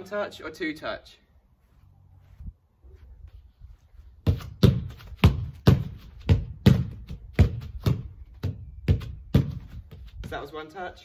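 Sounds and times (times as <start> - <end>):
football kicked against wall: 4.2 - 10.3.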